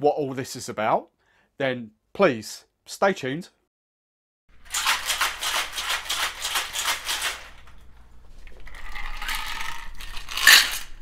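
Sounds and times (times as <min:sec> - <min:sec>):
ice rattling in cocktail shaker: 0:08.5 - 0:11.0
sharp clink: 0:10.4 - 0:11.0.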